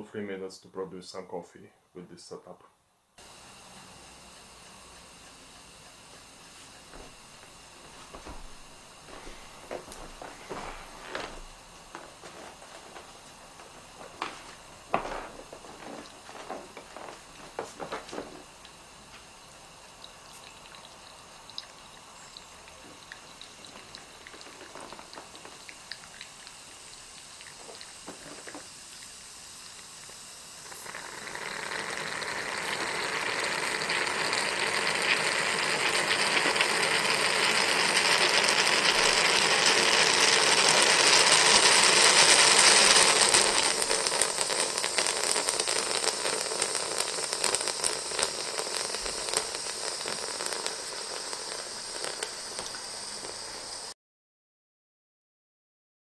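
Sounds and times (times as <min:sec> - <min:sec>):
espresso pot hissing and sputtering: 0:03.2 - 0:54.0
coffee dripping: 0:03.5 - 0:53.9.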